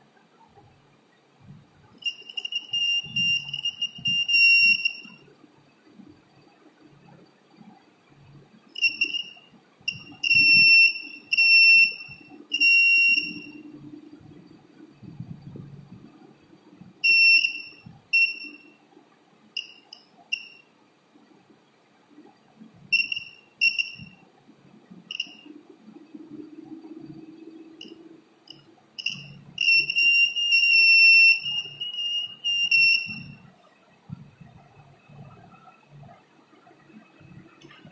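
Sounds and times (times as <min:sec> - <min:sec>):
electric buzzer beeping: 0:02.0 - 0:05.2, 0:08.8 - 0:13.5, 0:17.0 - 0:18.6, 0:19.6 - 0:20.6, 0:22.9 - 0:24.2, 0:25.1 - 0:25.4, 0:27.8 - 0:33.4.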